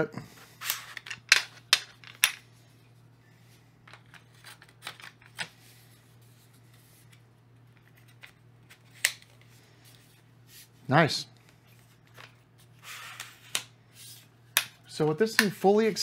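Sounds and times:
shaft sections sliding and rubbing: 0.5 - 2.8.

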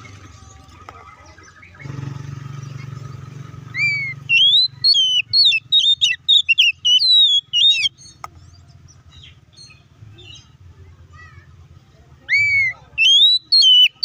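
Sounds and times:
faint soft bird calls: 0.0 - 14.0
bird singing whistled notes: 1.2 - 2.0, 2.8 - 10.5, 12.3 - 14.0.

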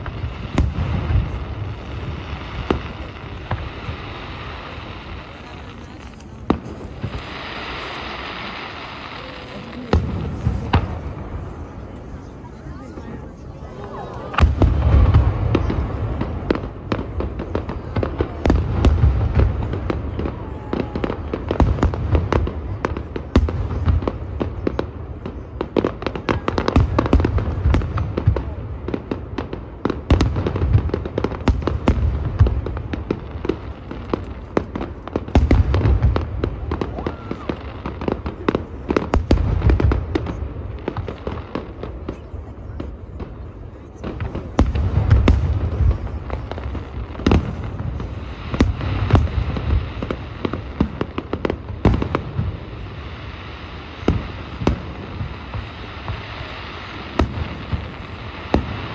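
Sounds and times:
firework shells booming: 0.0 - 11.7, 44.0 - 53.0
firework crackling and popping: 0.0 - 58.9.

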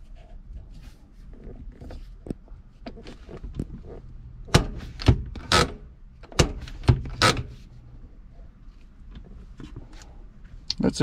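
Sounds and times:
handbrake lever clunks and clicks: 2.8 - 7.6.

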